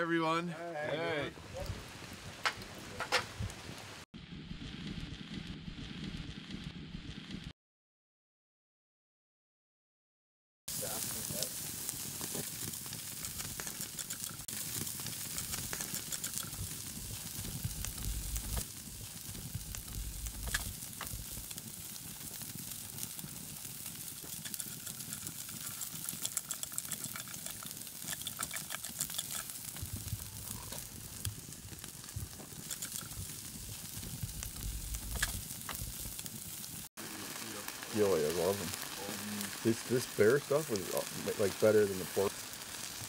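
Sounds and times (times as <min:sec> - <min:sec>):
wood fire crackling: 0:00.0 - 0:07.5, 0:10.7 - 0:43.0
ribs sizzling on a grill: 0:10.7 - 0:43.0.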